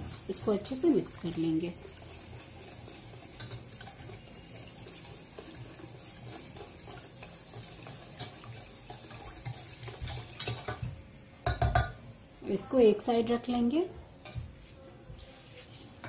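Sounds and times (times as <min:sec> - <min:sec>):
whisk swishing liquid in saucepan: 0:00.0 - 0:10.9
whisk wires ticking against pan: 0:00.0 - 0:12.0.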